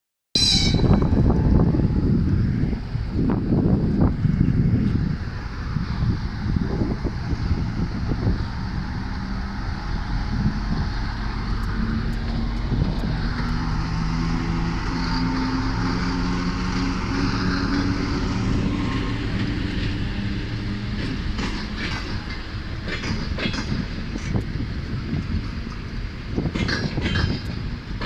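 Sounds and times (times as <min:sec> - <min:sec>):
diesel locomotive engine droning: 0:00.4 - 0:28.0
wheels clicking over rail joints: 0:08.9 - 0:28.0.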